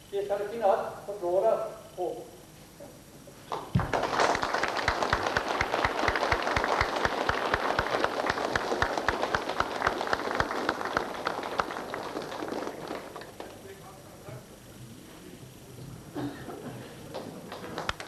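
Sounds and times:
audience applauding: 3.5 - 13.9, 17.0 - 18.0
close hands clapping: 3.5 - 14.0, 17.1 - 18.0.

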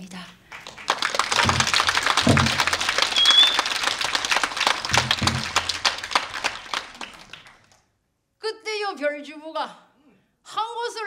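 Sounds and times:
audience applauding: 0.4 - 7.8
low thumps: 1.3 - 4.0, 4.7 - 6.5
high whistle: 3.0 - 3.9.

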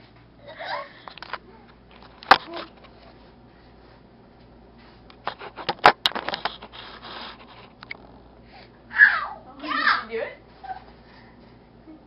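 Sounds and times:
clicks and rubbing: 5.1 - 8.1.

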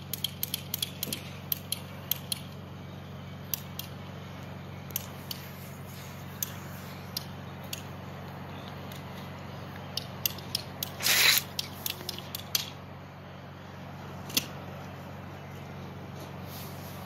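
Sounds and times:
steady low hum: 0.0 - 17.0
loud hissing burst: 11.0 - 11.5.

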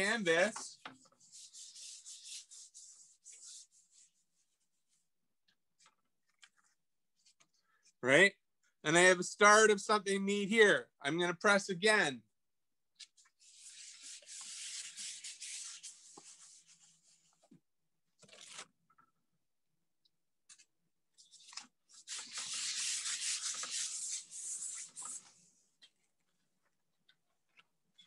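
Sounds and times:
hand rubbing paper: 0.0 - 5.0, 13.4 - 17.4, 21.2 - 25.5.

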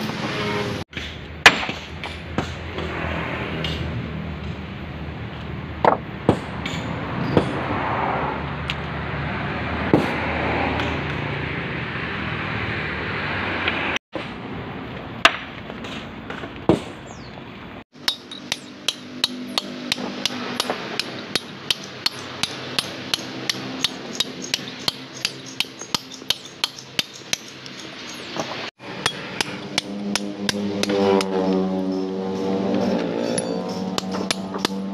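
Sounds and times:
hammer striking steel chisel: 18.0 - 32.1, 32.8 - 34.9.

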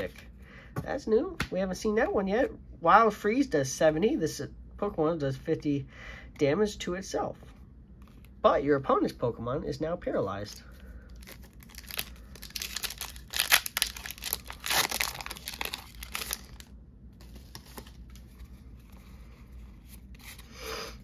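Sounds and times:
foil wrapper tearing and crinkling: 11.1 - 16.7.

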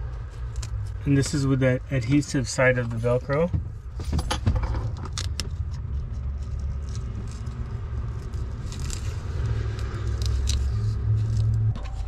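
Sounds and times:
steady low rumble: 0.0 - 12.0
faint crackling of velcro strip: 5.5 - 12.0.

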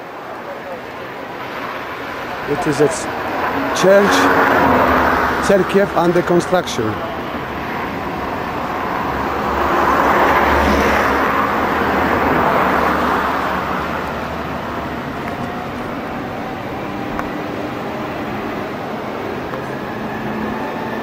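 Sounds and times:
car tyres and engine rushing: 0.0 - 21.0.

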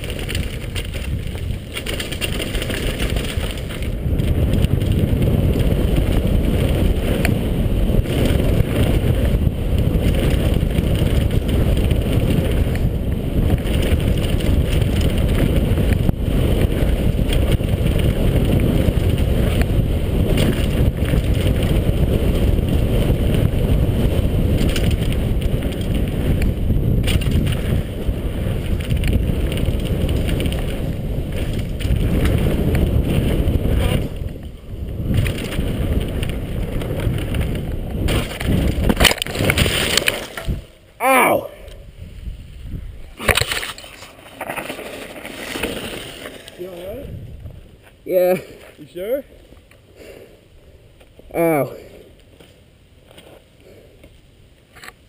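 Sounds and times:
wind on microphone: 0.0 - 48.3
bike rumbling and rattling on dirt: 0.0 - 55.0.

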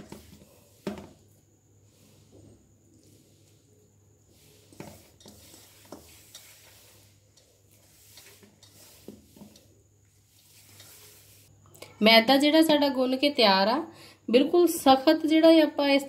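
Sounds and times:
dough rustling and squishing: 0.0 - 11.6.

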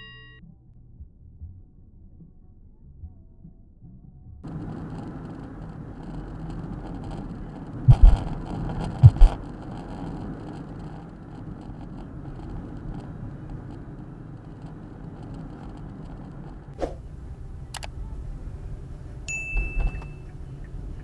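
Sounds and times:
car road and engine noise: 4.3 - 21.0
loud double thumps: 6.2 - 9.6.

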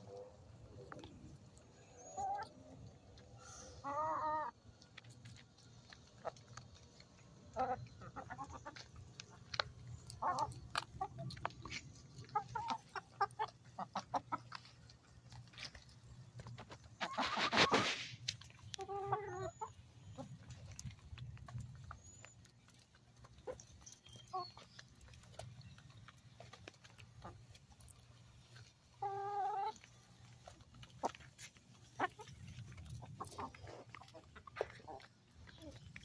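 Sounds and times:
beaks pecking the ground: 0.0 - 36.0.

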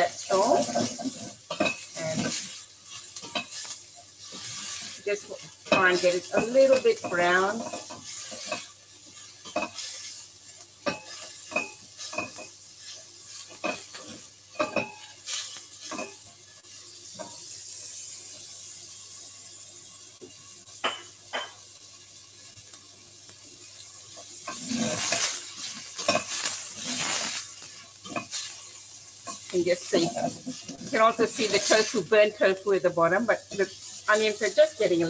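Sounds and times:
utensil scraping a pan: 0.0 - 16.2, 24.2 - 32.1
onions sizzling in a pan: 0.0 - 35.0.

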